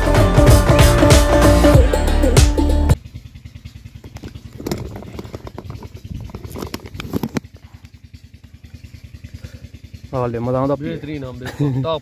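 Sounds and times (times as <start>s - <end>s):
diesel engine low thudding: 0.0s - 12.0s
sharp clicks and knocks: 4.0s - 7.6s.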